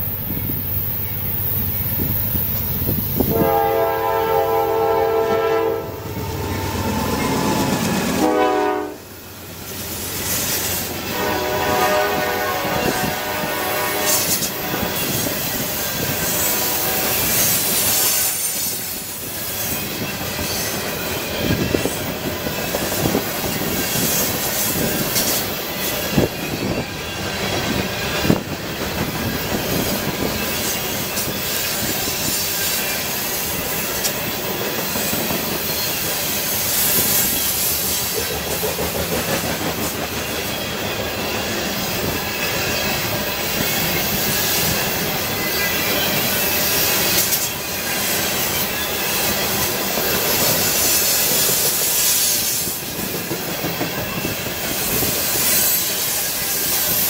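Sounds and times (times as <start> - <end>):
train wheels clattering over rail joints: 14.0 - 57.0.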